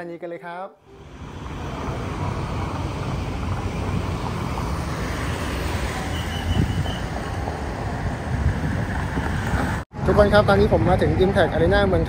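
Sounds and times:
passing car traffic: 0:00.8 - 0:12.0
wind rumble on microphone: 0:06.4 - 0:09.8.

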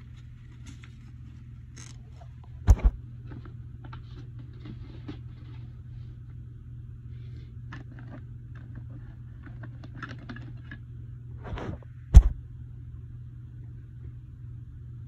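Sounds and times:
steady low hum: 0:00.0 - 0:09.6, 0:10.6 - 0:15.0
loud thump: 0:02.7 - 0:03.0, 0:12.1 - 0:12.4.

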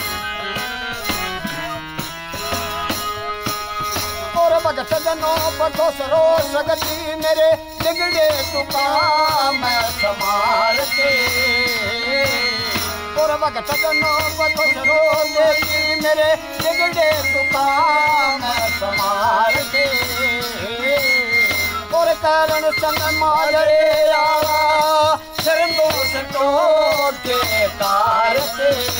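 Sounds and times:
bamboo flute melody: 0:00.0 - 0:05.4, 0:06.7 - 0:28.4
tambourine jingles: 0:01.0 - 0:28.9.

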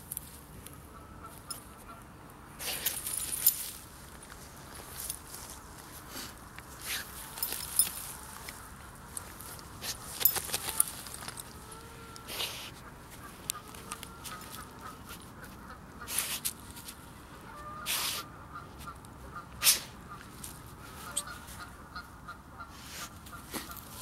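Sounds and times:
dog digging and scraping: 0:02.6 - 0:08.5, 0:09.1 - 0:17.0
dog sniffing: 0:12.3 - 0:12.8.

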